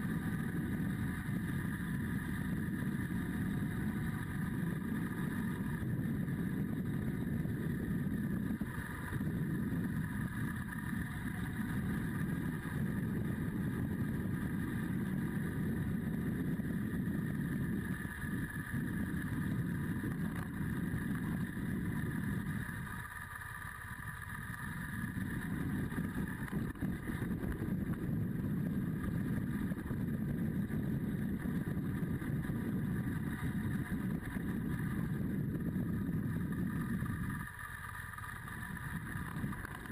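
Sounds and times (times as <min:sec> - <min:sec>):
motorcycle engine running: 0:00.0 - 0:39.9
road and wind noise: 0:00.0 - 0:39.9.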